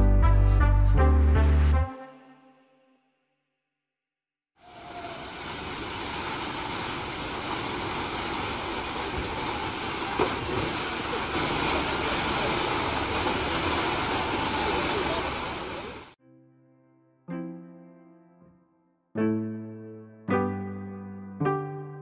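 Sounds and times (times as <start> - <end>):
rushing water: 4.6 - 16.2.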